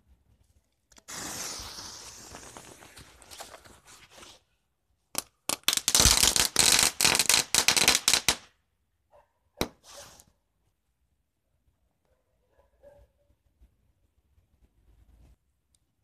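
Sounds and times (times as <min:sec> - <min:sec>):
firecrackers cracking: 0:00.9 - 0:03.4, 0:05.2 - 0:08.5.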